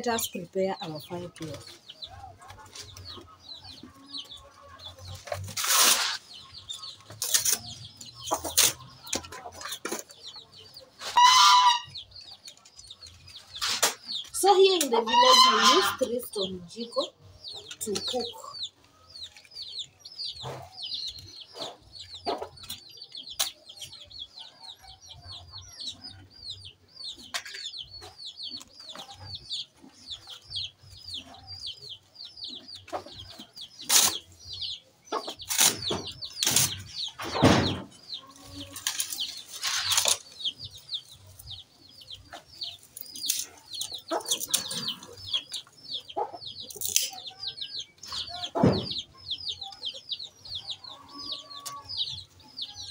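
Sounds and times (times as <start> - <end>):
chicks peeping: 0.0 - 52.9.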